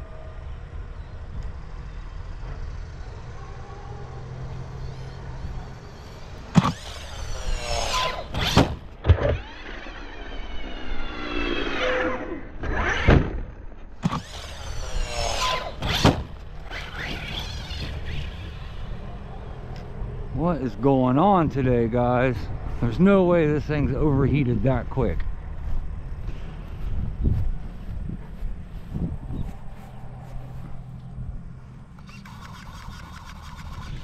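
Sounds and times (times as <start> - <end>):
electric motor whine: 1.4 - 20.1, 25.6 - 34.0
truck hitting ground: 12.6 - 18.9.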